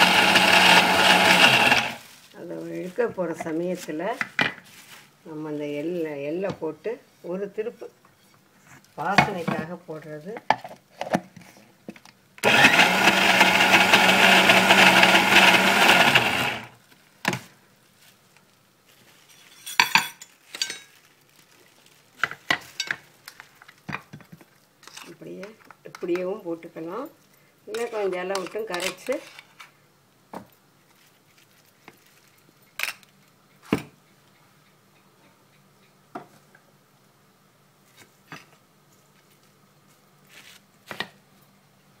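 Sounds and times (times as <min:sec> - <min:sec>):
mixer grinder running: 0:00.0 - 0:02.0, 0:12.4 - 0:16.7
leaves rustling: 0:00.3 - 0:03.0.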